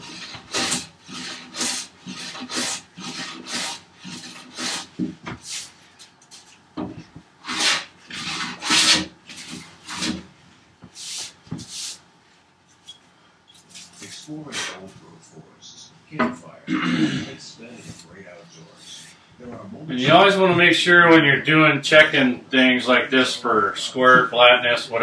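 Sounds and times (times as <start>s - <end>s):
hand plane shaving wood: 0.0s - 5.7s, 7.4s - 10.2s.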